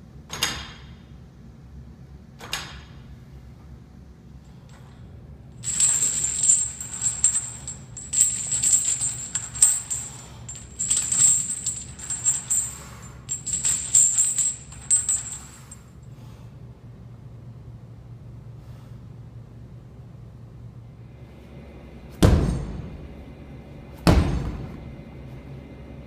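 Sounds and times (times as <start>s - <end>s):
metal chains jingling: 5.6s - 15.9s.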